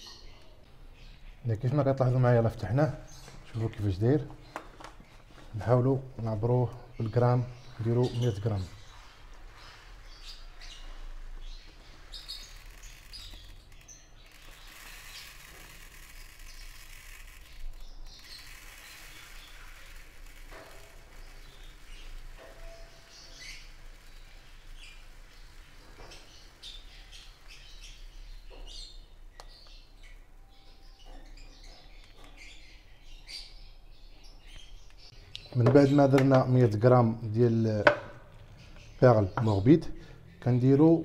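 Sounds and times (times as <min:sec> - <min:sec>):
small birds chirping: 0:00.0 - 0:41.0
food pellets poured into plastic tray: 0:18.3 - 0:21.8.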